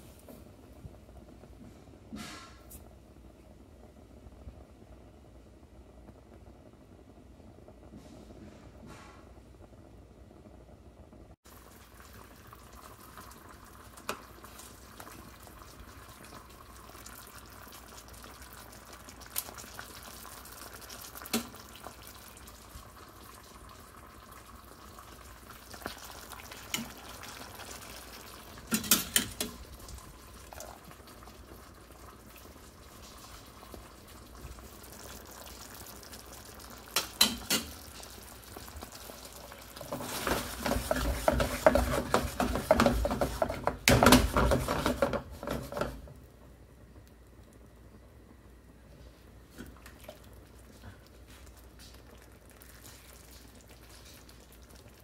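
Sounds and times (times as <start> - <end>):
pots simmering on stove: 0.0 - 55.0
utensil clicking against pan: 28.7 - 29.6, 37.0 - 38.0.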